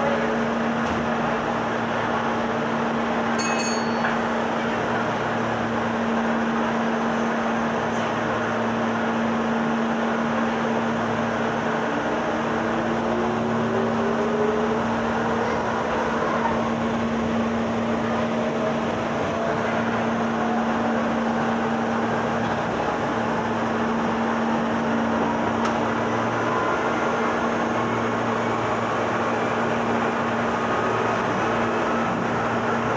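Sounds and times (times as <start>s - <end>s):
wheel on rail noise: 0.0s - 32.9s
train motor whine: 5.1s - 32.9s.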